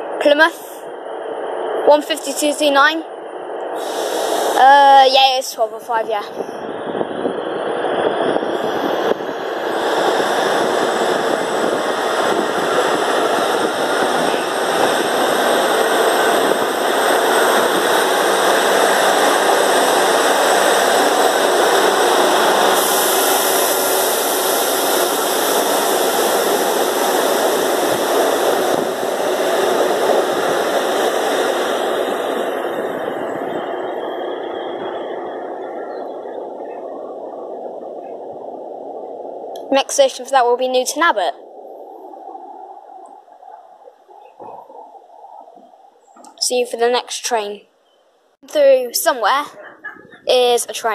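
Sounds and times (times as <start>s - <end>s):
diesel train engines under power: 0.0s - 41.4s, 48.4s - 50.9s
train wheels rumbling on rails: 3.6s - 41.3s.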